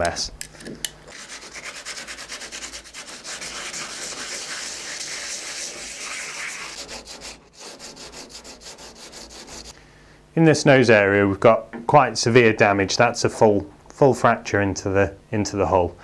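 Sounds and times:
sandpaper rubbing on hull: 1.1s - 9.7s.

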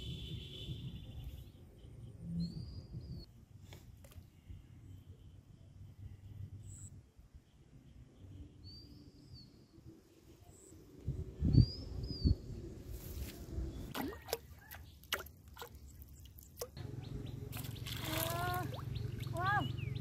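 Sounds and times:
bird chirping: 15.8s - 20.0s.

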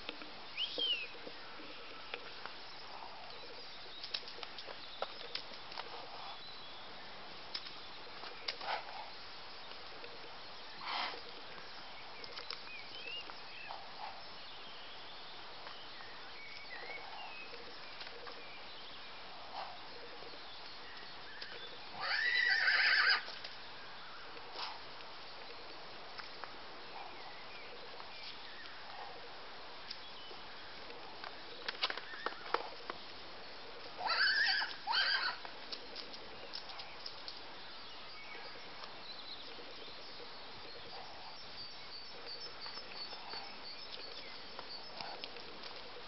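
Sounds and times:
pony whinnying: 22.0s - 23.3s, 34.0s - 35.4s.

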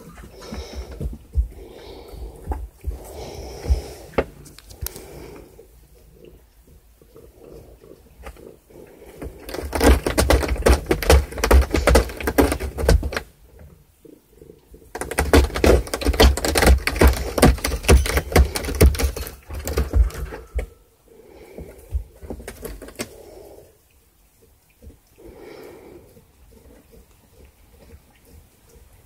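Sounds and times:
cat scratching cardboard: 9.1s - 13.3s, 15.0s - 20.3s.

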